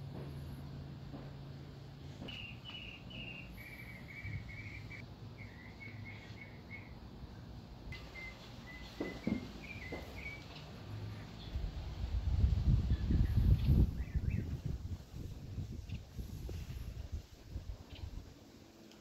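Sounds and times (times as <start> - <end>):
small bird chirping: 2.2 - 7.0, 8.0 - 10.6
soft knocks: 8.9 - 10.1.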